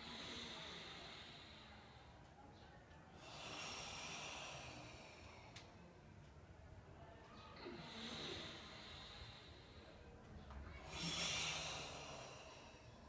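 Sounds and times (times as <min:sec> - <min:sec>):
forceful hissing breaths: 0:00.0 - 0:02.2, 0:03.2 - 0:05.6, 0:07.8 - 0:10.0, 0:10.8 - 0:13.0.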